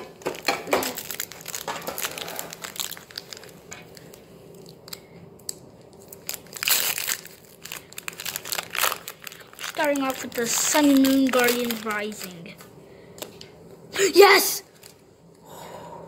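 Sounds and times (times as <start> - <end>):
foil wrapper crinkling and tearing: 0.2 - 12.6, 14.7 - 15.0.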